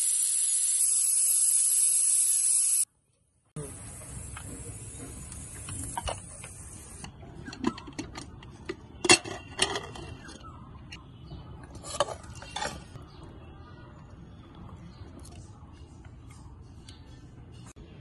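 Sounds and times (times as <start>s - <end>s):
thin high hiss: 0.0s - 2.9s.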